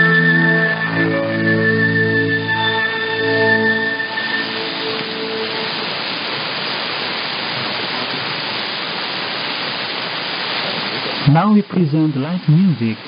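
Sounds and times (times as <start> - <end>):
music note: 0.0 - 6.0
radio static hiss: 4.2 - 13.0.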